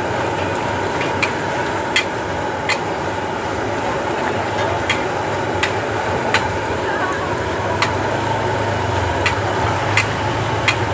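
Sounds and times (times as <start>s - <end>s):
oil frying hiss: 0.0s - 10.9s
metal ladle clicking against wok: 9.2s - 10.9s.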